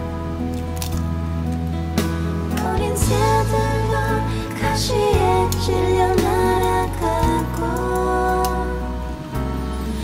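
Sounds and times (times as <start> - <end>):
song with singing voice: 2.5 - 10.0.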